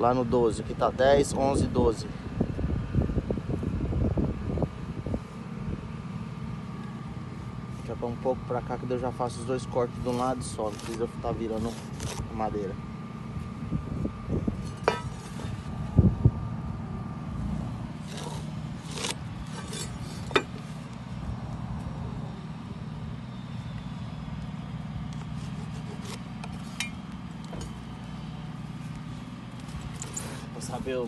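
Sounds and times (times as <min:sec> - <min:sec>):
steady low rumble: 0:00.0 - 0:06.2, 0:12.7 - 0:25.1.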